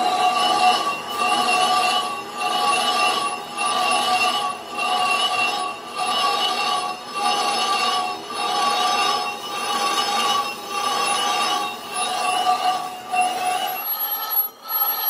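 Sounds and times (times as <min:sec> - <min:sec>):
lathe tool squealing on metal: 0:00.0 - 0:15.0.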